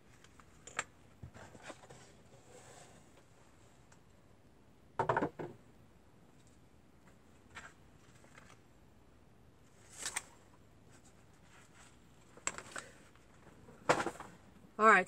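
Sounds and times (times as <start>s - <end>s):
paper pages rustling: 7.4s - 8.6s, 9.8s - 13.4s.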